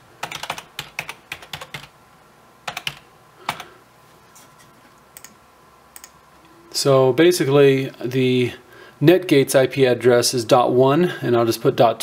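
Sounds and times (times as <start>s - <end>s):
typing on computer keyboard: 0.2s - 1.9s, 2.7s - 3.7s.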